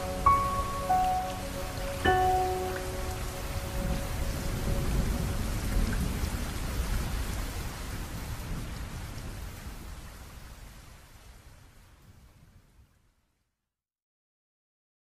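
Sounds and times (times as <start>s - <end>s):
background music note: 0.0s - 6.1s
steady rain: 0.0s - 13.6s
low rumble of thunder: 1.3s - 12.8s.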